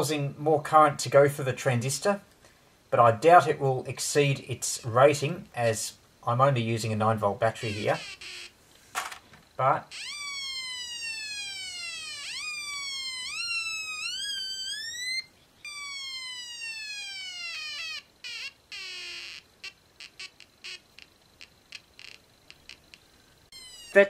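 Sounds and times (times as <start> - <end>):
electronic siren wail: 7.7 - 8.5, 9.9 - 20.8, 23.5 - 24.0.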